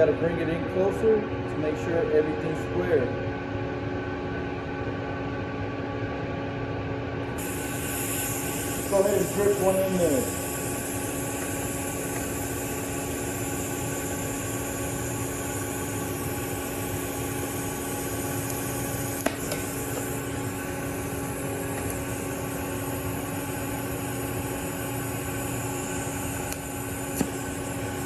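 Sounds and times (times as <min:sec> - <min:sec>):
welding machine hum: 0:00.0 - 0:28.0
welding arc: 0:07.4 - 0:28.0.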